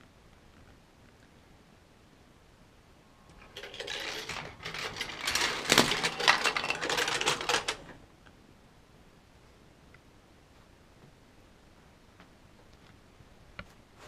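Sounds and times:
model train rattling on track: 3.4 - 8.0.

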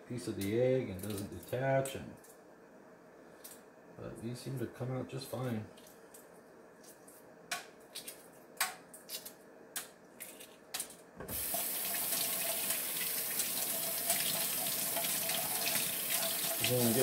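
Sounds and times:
water running into sink: 11.3 - 17.0.

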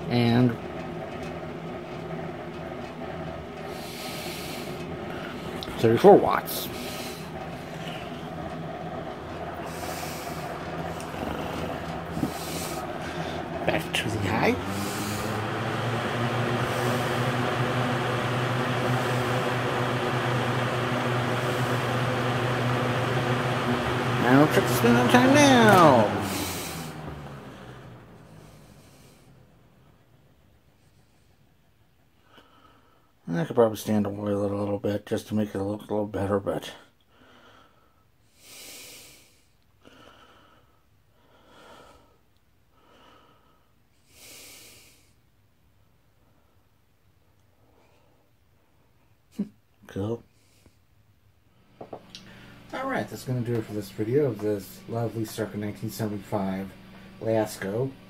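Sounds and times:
box fan running: 0.0 - 45.1, 51.5 - 58.0
person breathing close to microphone: 3.7 - 5.6, 6.6 - 8.2, 9.5 - 13.6, 26.1 - 27.1, 37.1 - 45.2.

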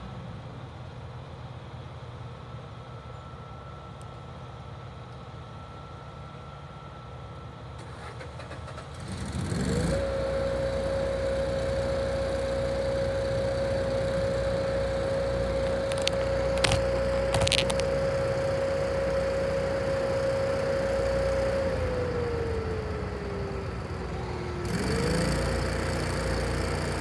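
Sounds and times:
electronic siren steady tone: 9.8 - 24.0.

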